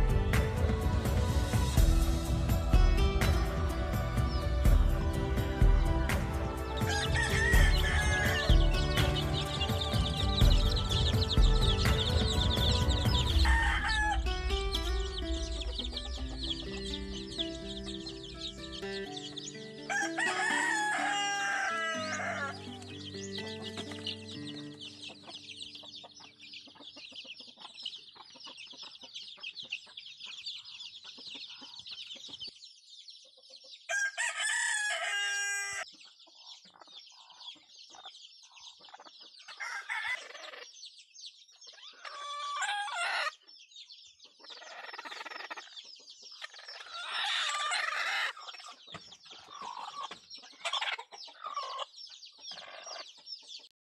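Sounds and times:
soft background music: 0:00.0 - 0:27.4
chickens clucking: 0:00.0 - 0:53.7
chicks peeping: 0:00.0 - 0:53.7
rooster crowing: 0:06.7 - 0:09.9, 0:13.2 - 0:14.6, 0:19.8 - 0:22.7, 0:33.9 - 0:35.8, 0:39.6 - 0:40.3, 0:42.0 - 0:43.3.

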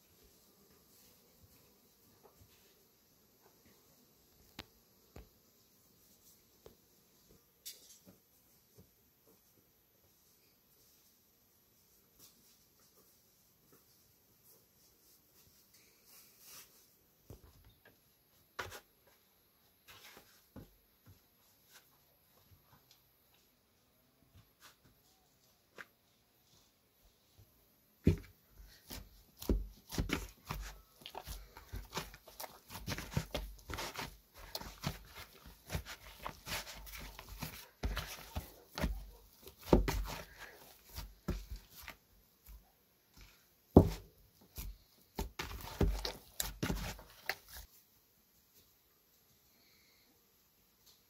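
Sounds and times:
dough kneaded in plastic bowl: 0:27.3 - 0:47.8.

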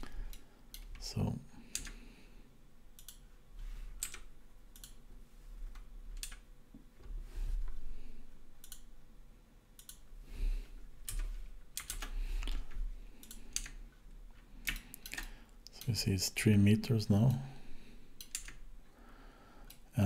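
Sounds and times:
keyboard keystrokes: 0:11.1 - 0:12.1.

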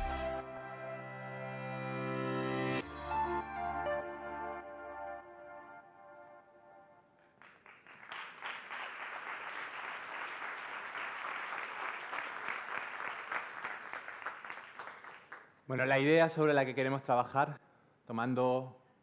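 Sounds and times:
audience applauding: 0:07.3 - 0:15.6.

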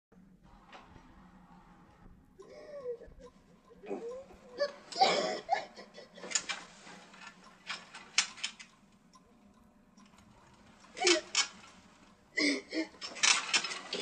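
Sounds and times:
woman crying hysterically: 0:02.4 - 0:06.4.

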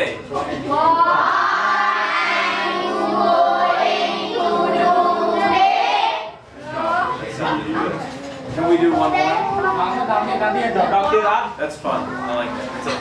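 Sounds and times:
children speaking in unison: 0:00.4 - 0:10.3.

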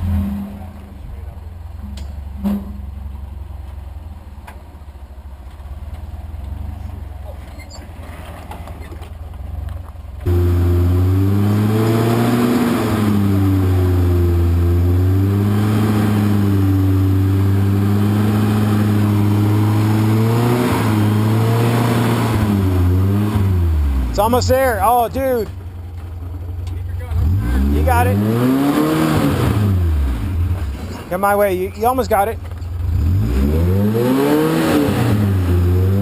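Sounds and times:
truck engine revving: 0:10.2 - 0:36.0.

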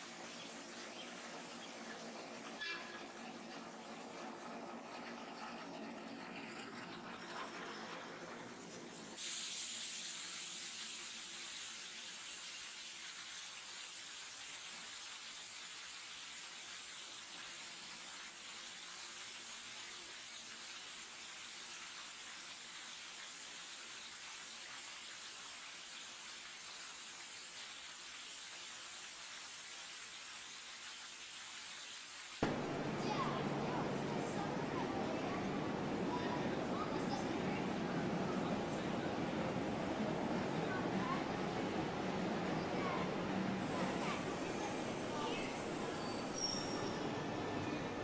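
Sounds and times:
steady hiss: 0:09.0 - 0:46.6
streetcar passing: 0:32.4 - 0:48.0.

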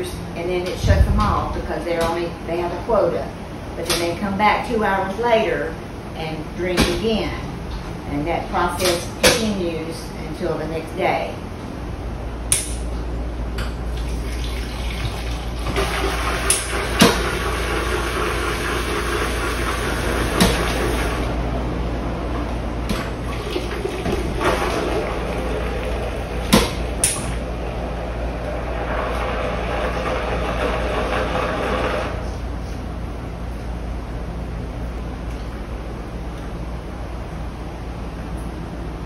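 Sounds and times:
steady machine hum: 0:00.0 - 0:39.0.

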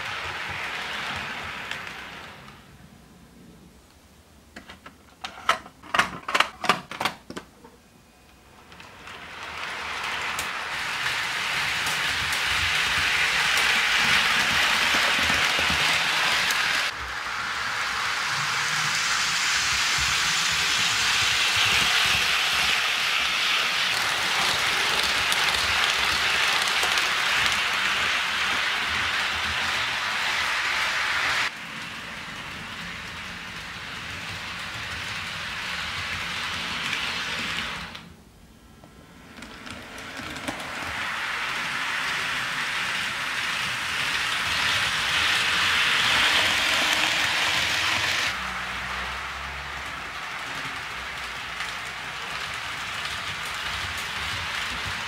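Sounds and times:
model train wheels rattling: 0:18.9 - 0:31.5.

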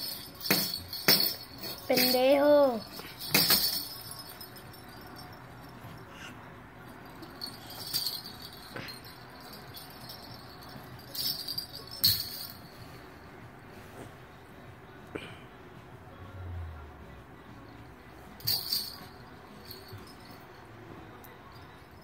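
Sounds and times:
toy rattle jingling: 0:00.0 - 0:06.2, 0:06.9 - 0:13.0, 0:18.4 - 0:20.6.

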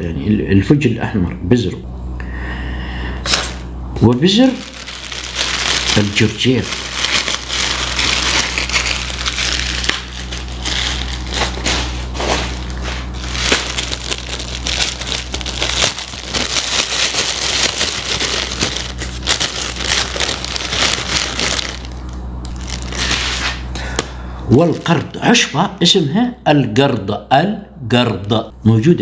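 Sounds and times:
faint low hum: 0:00.0 - 0:29.0
plastic bag crinkling: 0:03.3 - 0:23.7.

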